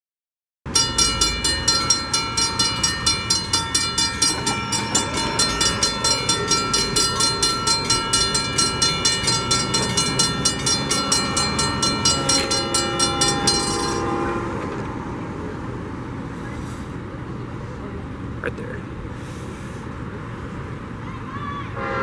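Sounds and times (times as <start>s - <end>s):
railroad crossing bell ringing: 0.7s - 14.6s.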